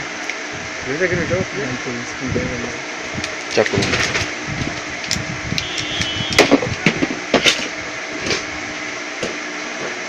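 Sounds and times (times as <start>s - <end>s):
steady background hum: 0.0s - 10.0s.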